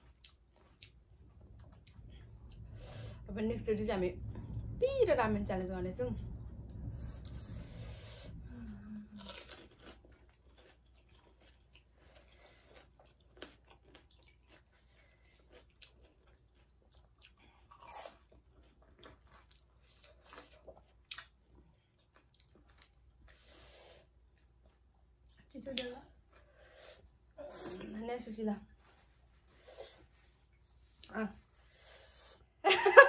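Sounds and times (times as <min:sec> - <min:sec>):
crunching and chewing: 0:00.0 - 0:02.7, 0:09.1 - 0:23.4.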